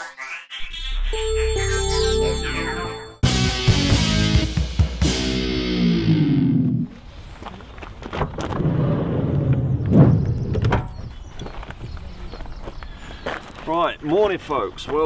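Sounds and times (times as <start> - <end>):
intro music with falling sweep: 0.6 - 6.2.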